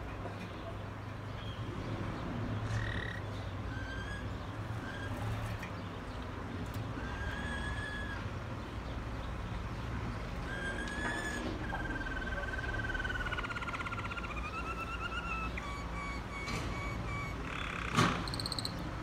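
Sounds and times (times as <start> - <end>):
canary singing: 2.6 - 19.0.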